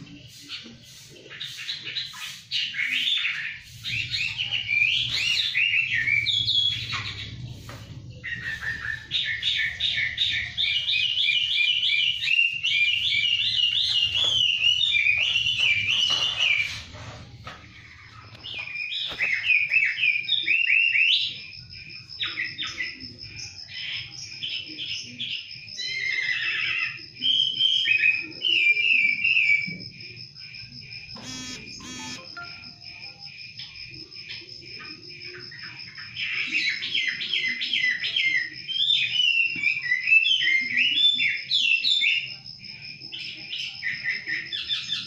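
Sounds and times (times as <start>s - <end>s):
songbirds chirping: 0.0s - 45.0s
thin steady high tone: 31.2s - 33.4s.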